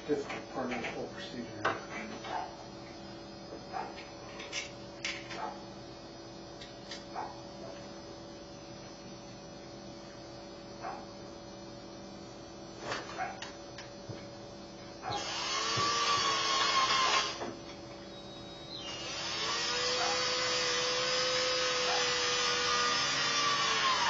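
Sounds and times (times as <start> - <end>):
power screwdriver whining: 15.1 - 17.4, 18.8 - 24.0.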